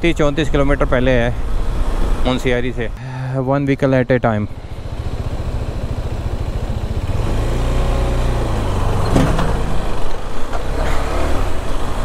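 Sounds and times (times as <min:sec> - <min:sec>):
motorcycle engine running: 0:04.5 - 0:08.8
truck passing: 0:04.5 - 0:12.0.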